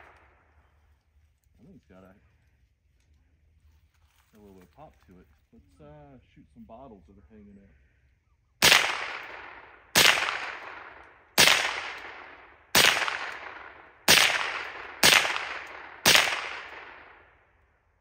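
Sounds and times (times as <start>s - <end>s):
rifle shots echoing: 8.6s - 17.6s.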